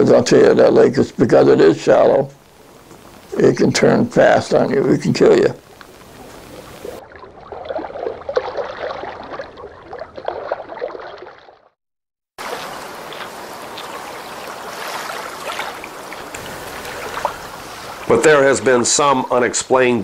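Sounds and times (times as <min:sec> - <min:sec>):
water lapping and sloshing: 0:05.8 - 0:11.8, 0:12.4 - 0:19.4.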